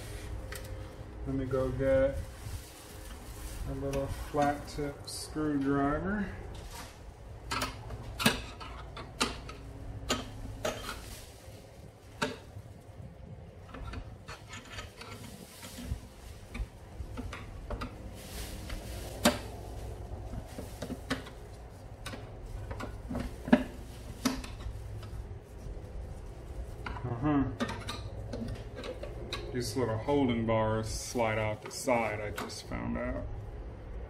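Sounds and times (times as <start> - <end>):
screwdriver scraping metal plate: 13.6 - 15.4.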